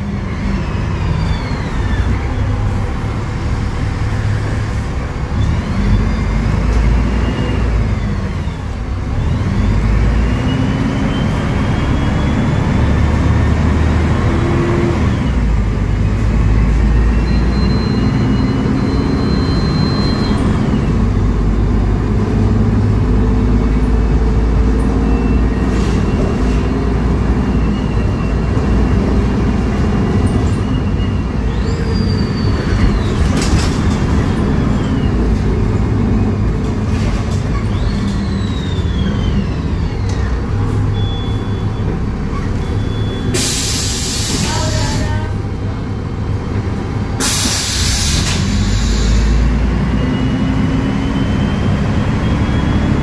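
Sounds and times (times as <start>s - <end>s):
bus engine rumble: 0.0s - 53.0s
compressed air hisses: 47.2s - 49.4s.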